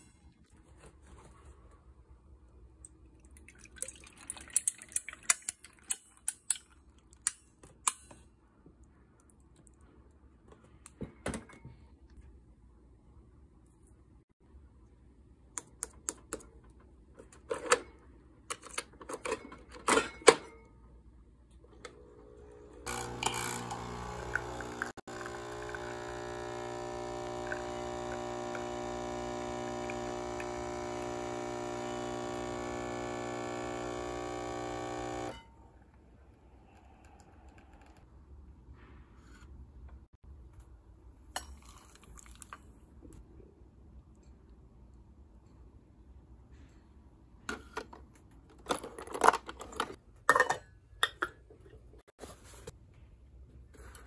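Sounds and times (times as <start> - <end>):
steady machine hum: 22.1 - 35.4.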